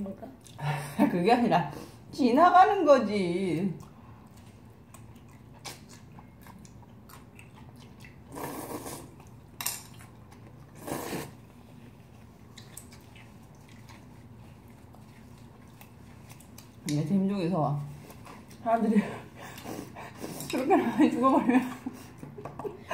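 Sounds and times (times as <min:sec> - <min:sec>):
chewing: 0:03.7 - 0:17.1, 0:17.9 - 0:18.7
slurping noodles: 0:08.0 - 0:09.3, 0:10.7 - 0:11.6.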